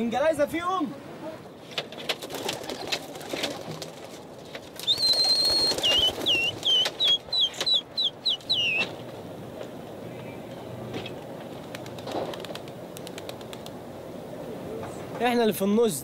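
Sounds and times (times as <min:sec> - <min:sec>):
pigeon wings flapping: 0:01.8 - 0:07.8, 0:11.2 - 0:13.8.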